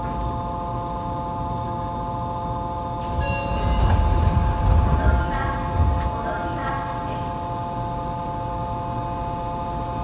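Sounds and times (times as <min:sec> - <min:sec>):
train equipment humming: 0:00.0 - 0:10.0
heavy low rumble: 0:03.1 - 0:06.8.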